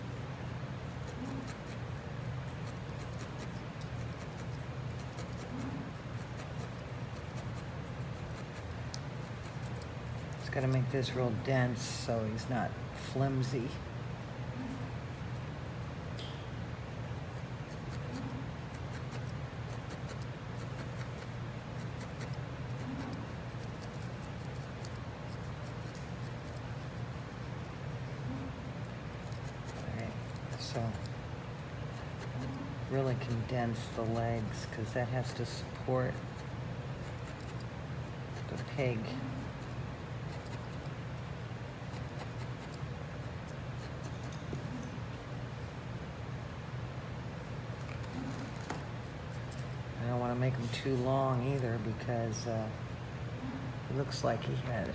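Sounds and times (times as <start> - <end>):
steady low hum: 0.0 - 54.9.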